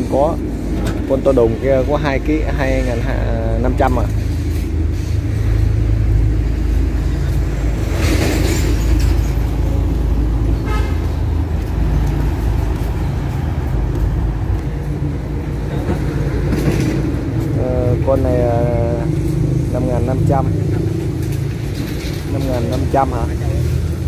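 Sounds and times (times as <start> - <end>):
traffic engines rumbling: 0.0 - 24.0
car horn toot: 10.6 - 11.1.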